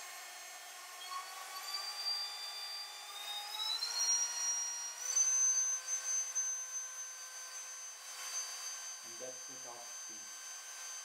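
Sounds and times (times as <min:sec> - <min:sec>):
rotary tool high whine: 0:00.0 - 0:11.0.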